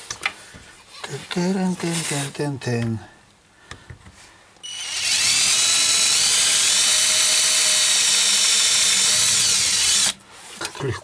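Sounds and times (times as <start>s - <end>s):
cordless drill drilling plastic: 4.6s - 10.2s.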